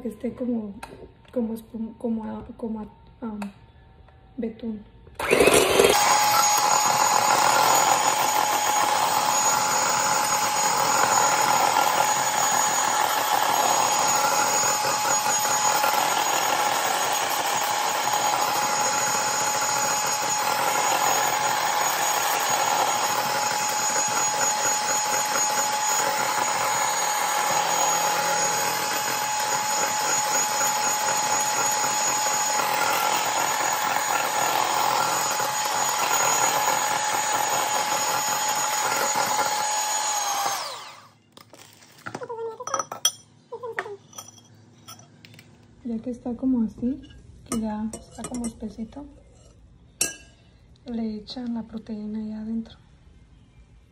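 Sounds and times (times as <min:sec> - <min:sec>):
electric hand mixer whining: 0:05.2 - 0:41.7.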